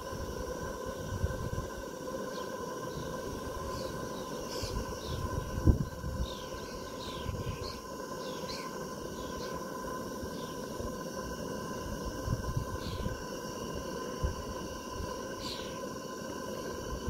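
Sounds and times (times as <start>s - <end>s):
steady hum: 0.0s - 17.0s
small birds chirping: 3.7s - 5.4s, 6.2s - 9.6s, 12.8s - 13.2s, 15.4s - 15.8s.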